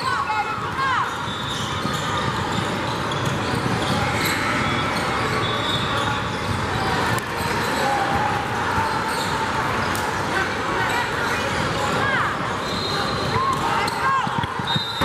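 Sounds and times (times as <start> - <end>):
hubbub of spectators: 0.0 - 15.0
sneakers squeaking: 0.0 - 15.0.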